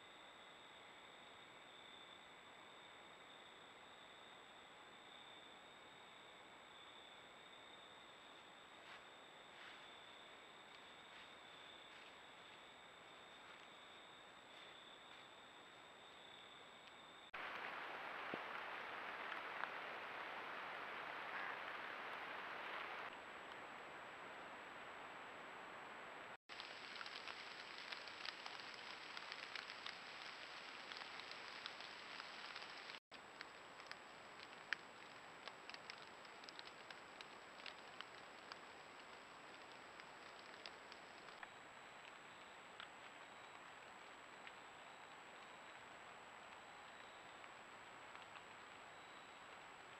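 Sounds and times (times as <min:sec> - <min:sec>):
microphone hiss: 0:17.3 - 0:35.4
faint ticks: 0:26.5 - 0:49.9.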